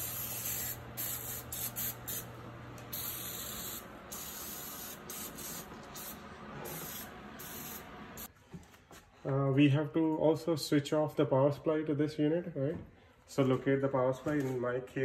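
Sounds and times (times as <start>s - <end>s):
aerosol can spraying: 0.0s - 2.3s, 2.9s - 8.3s.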